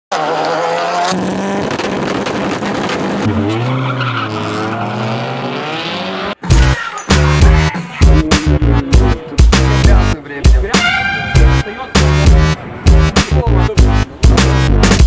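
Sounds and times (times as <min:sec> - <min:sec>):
race car engine revving: 0:00.1 - 0:06.4, 0:07.2 - 0:10.2
tyres squealing: 0:06.4 - 0:09.4
electronic music beat: 0:06.4 - 0:15.0.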